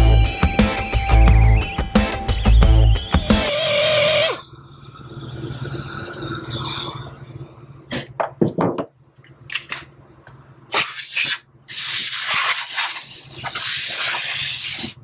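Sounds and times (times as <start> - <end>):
compressed air blow gun hissing: 10.7 - 15.0.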